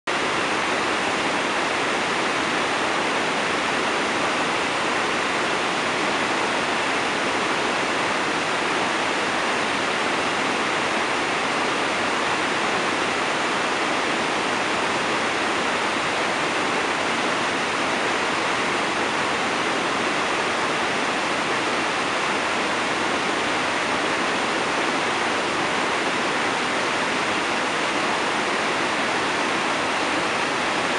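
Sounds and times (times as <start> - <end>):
water rushing down rocky cascade: 0.1 - 30.9.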